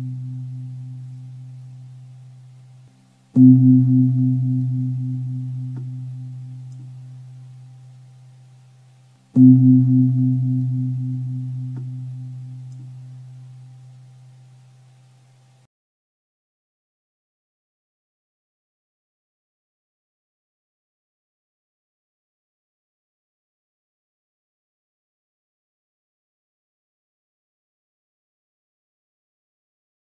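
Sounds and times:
deep bell ringing: 0.0 - 2.0, 3.4 - 7.5, 9.4 - 13.7.

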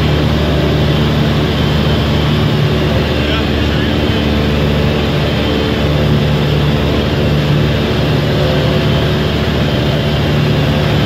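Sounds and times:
light aircraft engine droning: 0.0 - 11.0.

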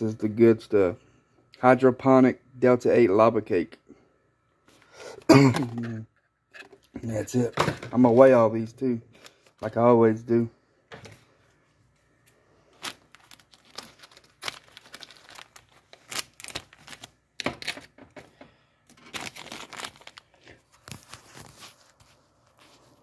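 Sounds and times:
plastic bags crinkling: 12.6 - 18.0, 18.9 - 22.0.

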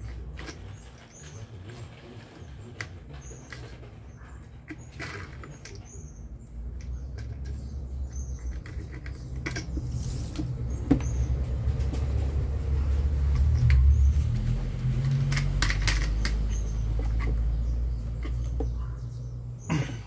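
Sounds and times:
plastic clicks and scraping: 0.0 - 12.4, 13.2 - 19.1
low rumble: 9.8 - 19.4.

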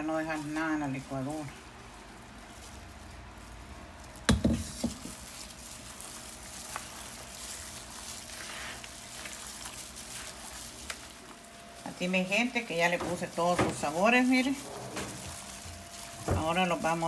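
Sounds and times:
wet squelching: 5.1 - 17.0.

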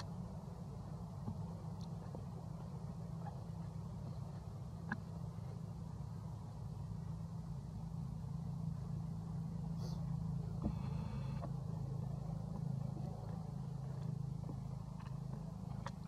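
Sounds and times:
motor humming: 10.4 - 14.8.

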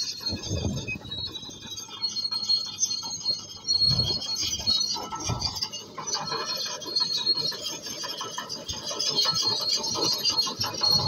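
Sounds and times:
bulldozer tracks squealing: 0.0 - 11.0.

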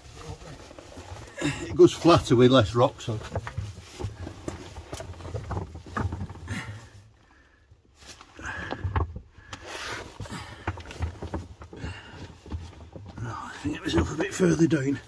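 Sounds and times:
person crawling over stones: 0.0 - 15.0.

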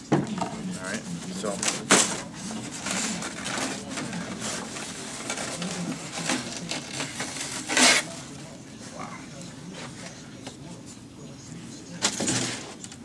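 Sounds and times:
polystyrene foam scraping: 2.7 - 8.2.

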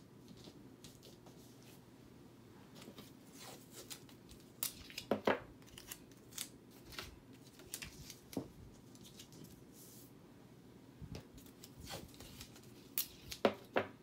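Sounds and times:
paper rustling: 2.7 - 10.1, 11.3 - 13.8.

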